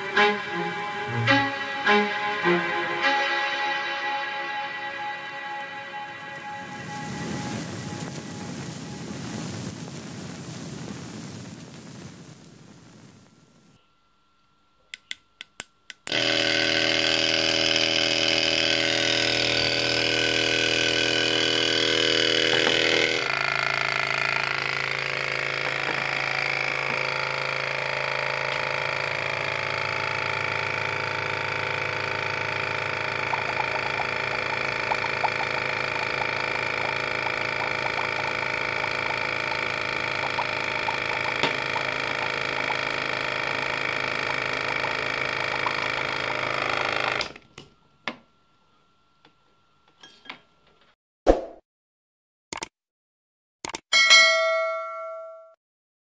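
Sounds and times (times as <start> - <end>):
small air pump motor humming: 6.1 - 9.2, 16.0 - 48.2
bubbling ticks in water: 33.3 - 43.4.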